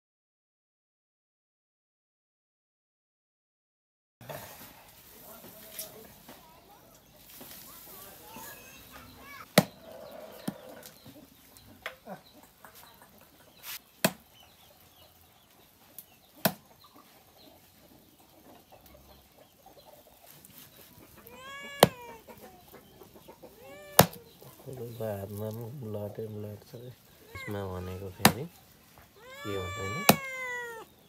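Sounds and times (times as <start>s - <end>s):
high-pitched animal call: 21.2s - 22.4s, 23.5s - 24.2s, 29.2s - 30.9s.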